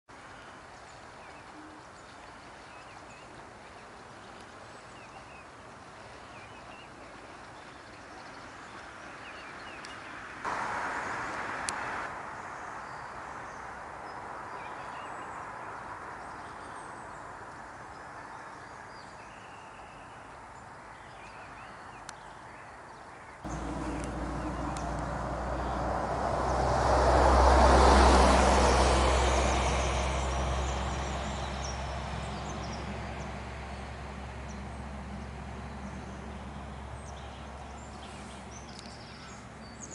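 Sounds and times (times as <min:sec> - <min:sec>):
small birds chirping: 0:21.0 - 0:25.9, 0:35.7 - 0:39.9.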